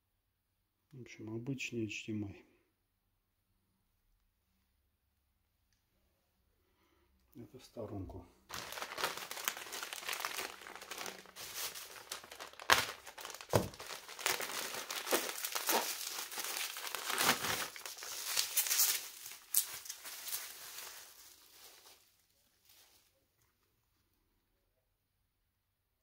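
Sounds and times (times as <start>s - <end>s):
plastic bags crinkling: 8.5s - 23.2s.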